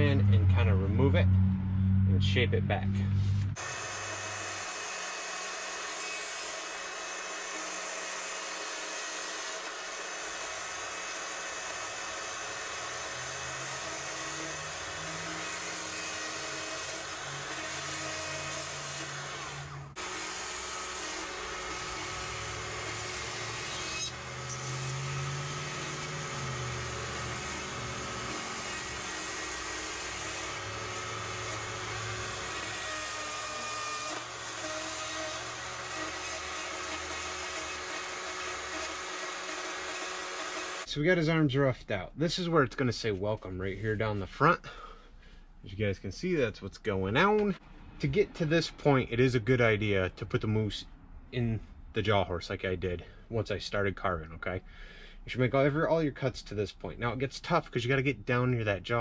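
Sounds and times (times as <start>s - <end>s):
electric chainsaw cutting wood: 3.3s - 40.9s.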